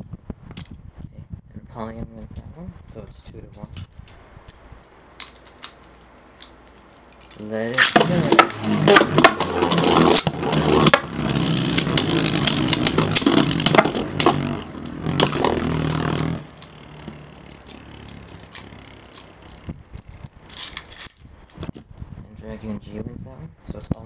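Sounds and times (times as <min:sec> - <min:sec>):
spinning tops clacking together: 0:05.2 - 0:21.8
spinning tops whirring and grinding: 0:05.2 - 0:21.9.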